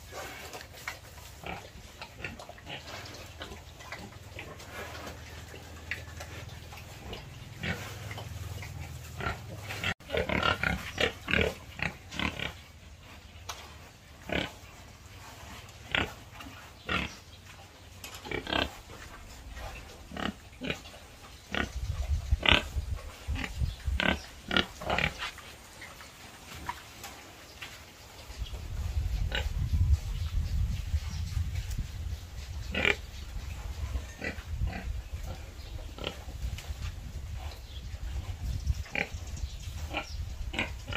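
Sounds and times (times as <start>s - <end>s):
pigs grunting: 0.0s - 13.4s, 14.1s - 17.3s, 18.1s - 25.4s, 32.6s - 36.5s, 37.1s - 40.9s.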